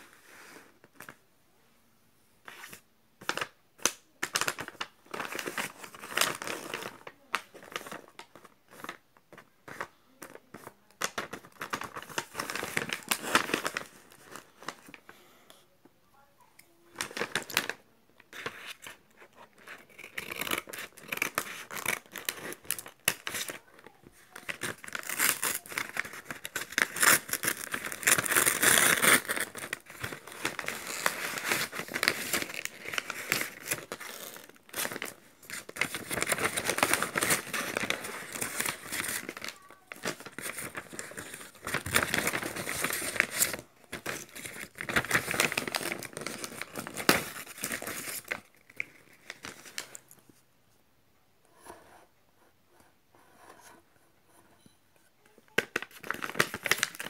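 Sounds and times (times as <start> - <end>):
paper bag crinkling and tearing: 4.2 - 9.0, 11.0 - 15.0, 17.0 - 50.1, 55.6 - 57.0.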